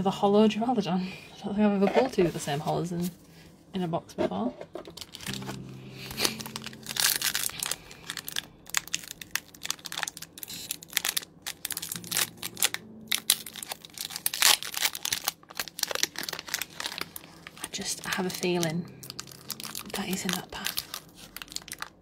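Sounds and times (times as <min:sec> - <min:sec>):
foil wrapper crinkling and tearing: 0:04.8 - 0:22.0.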